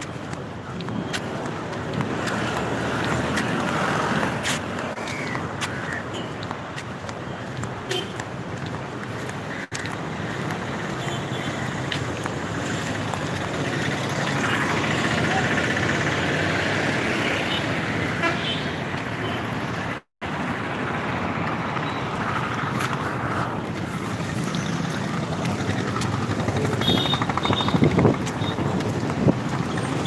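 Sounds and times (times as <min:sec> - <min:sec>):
vehicles passing: 0:00.0 - 0:30.0
car horn: 0:18.2 - 0:19.5, 0:26.8 - 0:28.6.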